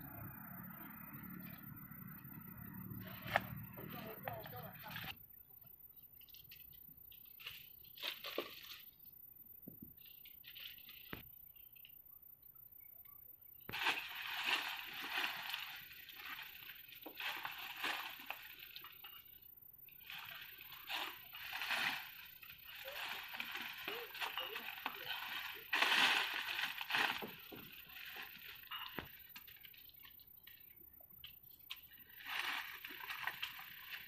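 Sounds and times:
dry leaves rustling and crackling: 7.2s - 9.0s, 13.7s - 19.4s, 20.0s - 30.6s, 31.7s - 34.0s.

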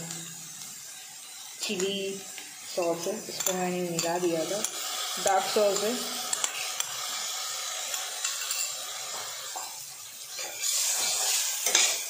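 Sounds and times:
vegetables sizzling in a pan: 0.0s - 12.0s
spoon and spatula clinking: 3.3s - 4.8s, 5.7s - 7.0s, 7.8s - 12.0s.

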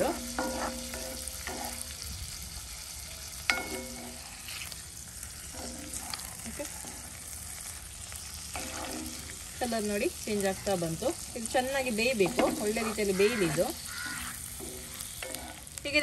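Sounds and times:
spatula knocking and scraping pan: 0.0s - 2.4s, 3.4s - 7.2s, 8.4s - 10.0s, 11.6s - 16.0s
food sizzling in butter: 0.0s - 16.0s.

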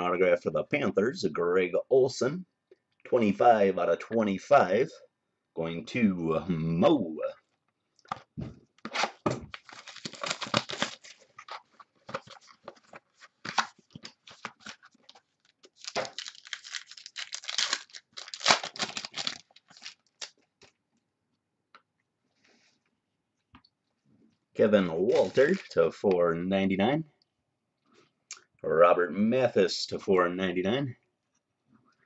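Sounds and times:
packaging torn open and crinkled: 8.8s - 12.6s, 13.2s - 20.8s, 25.1s - 25.8s.

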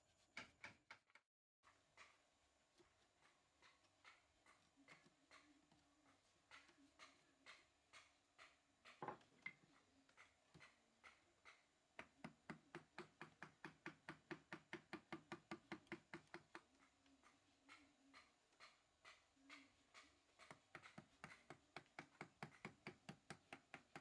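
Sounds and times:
mallet tapping chisel into wood: 8.9s - 16.7s, 20.0s - 24.0s.

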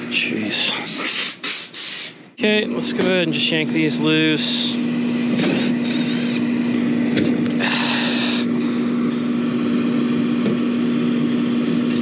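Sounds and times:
steady machine hum: 0.0s - 12.0s
cordless driver whirring: 4.9s - 7.6s.

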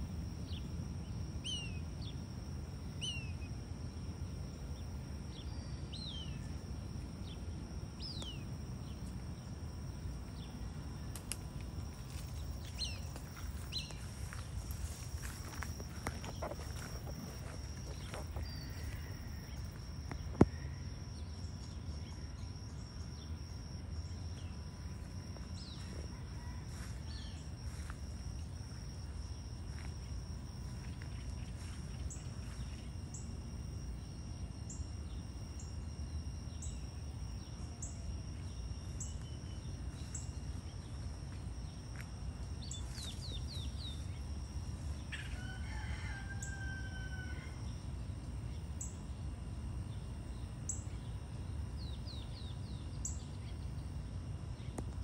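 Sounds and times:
low hum: 0.0s - 46.5s, 47.2s - 55.0s
high insect drone: 0.0s - 55.0s
rooster crowing: 25.7s - 27.9s, 45.1s - 47.9s.

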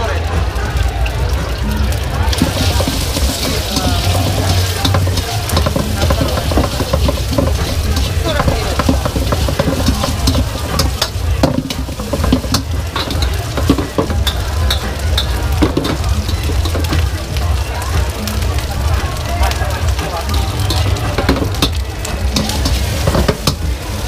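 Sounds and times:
egg sizzling in a wok: 2.2s - 24.0s
metal ladle scraping wok: 2.3s - 17.2s, 20.2s - 24.0s.

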